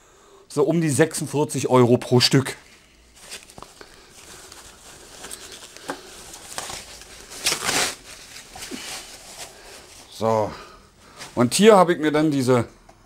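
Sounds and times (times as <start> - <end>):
plastic wrapping crinkling: 2.5 - 10.2.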